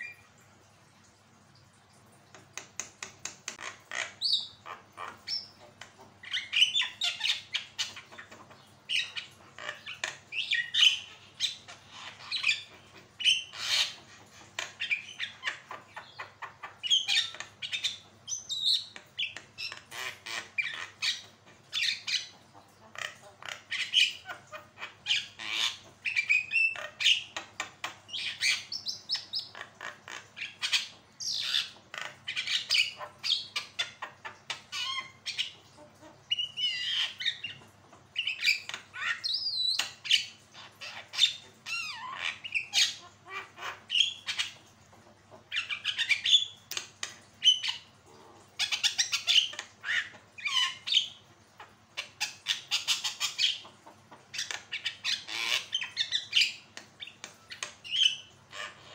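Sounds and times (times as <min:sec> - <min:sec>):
myna bird singing: 0:02.6 - 0:14.0, 0:14.6 - 0:44.6, 0:45.5 - 0:51.2, 0:52.0 - 0:58.9.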